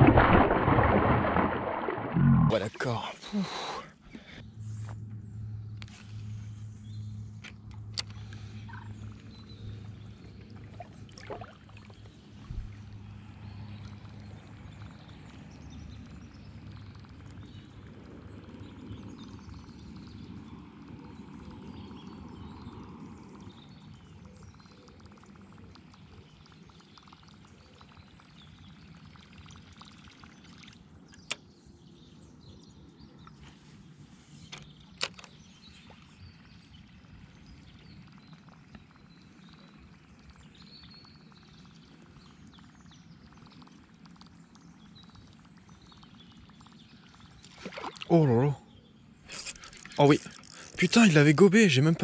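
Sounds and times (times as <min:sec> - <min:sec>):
water lapping: 0:00.0 - 0:04.4, 0:08.2 - 0:13.0, 0:47.2 - 0:48.6, 0:49.3 - 0:52.0.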